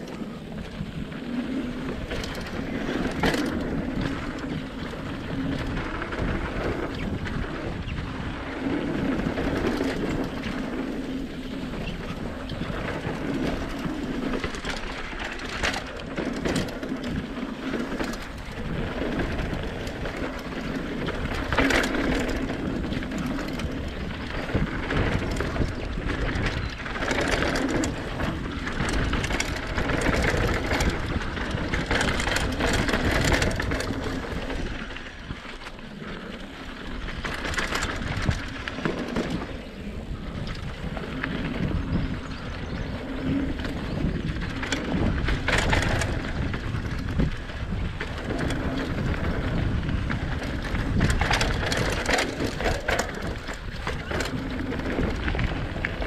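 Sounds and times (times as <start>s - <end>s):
bike knocks and rattles: 0.0s - 36.0s, 36.7s - 56.0s
bike tyre noise on dirt: 0.0s - 56.0s
wind rumbling on microphone: 0.0s - 56.0s.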